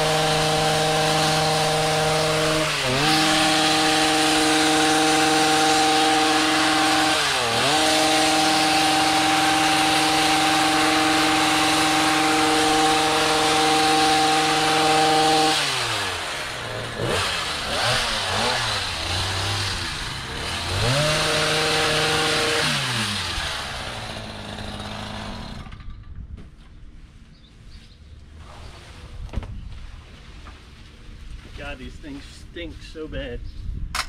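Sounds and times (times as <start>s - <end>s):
hedge trimmer engine: 0.0s - 25.9s.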